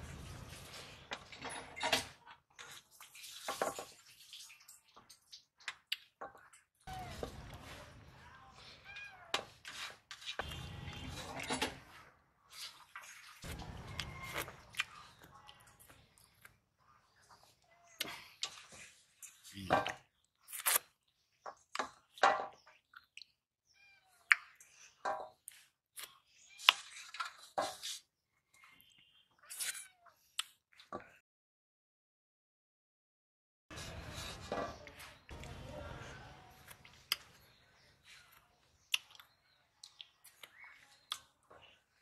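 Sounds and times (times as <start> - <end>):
man eating and chewing: 4.8 - 7.7, 9.4 - 23.4, 28.9 - 31.2, 33.8 - 42.0.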